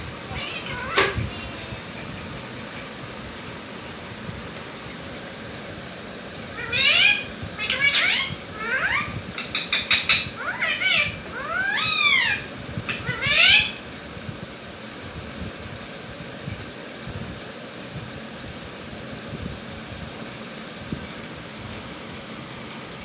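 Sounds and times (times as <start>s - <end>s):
steady hum: 0.0s - 23.0s
parakeet calling loudly: 0.3s - 2.8s, 6.5s - 13.8s.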